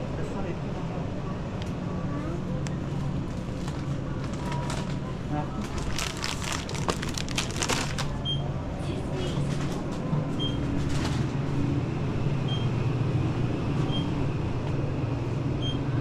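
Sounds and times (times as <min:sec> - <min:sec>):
packaging rustling: 0:03.5 - 0:05.0, 0:05.6 - 0:08.2.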